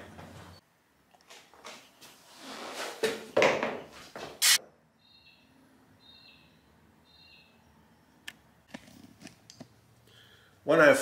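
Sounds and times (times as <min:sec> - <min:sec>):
shoes scuffing on tile: 0:01.4 - 0:04.6
faint bird chirps: 0:05.0 - 0:08.2.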